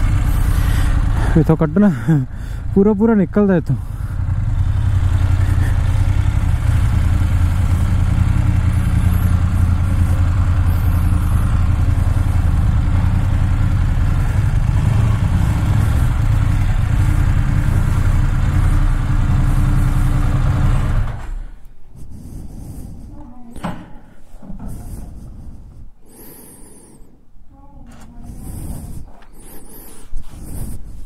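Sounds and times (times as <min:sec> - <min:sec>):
motorcycle engine running: 0:00.0 - 0:21.6.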